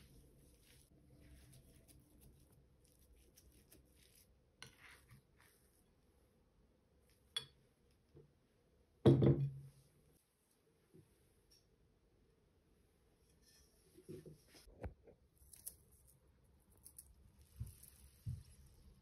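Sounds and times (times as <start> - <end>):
soft rustling: 0.0 - 6.2, 15.4 - 19.0.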